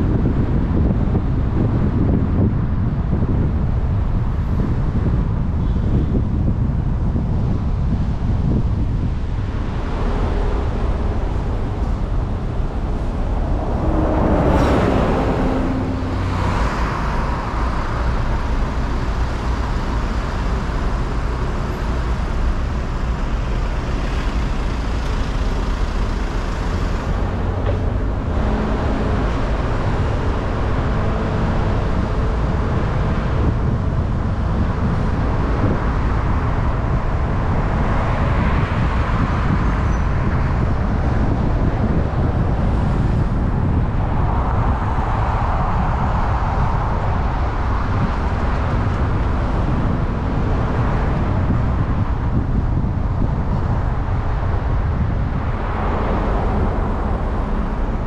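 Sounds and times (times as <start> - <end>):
traffic rumble: 0.0 - 58.0
vehicle passing: 8.4 - 20.2, 25.9 - 35.5.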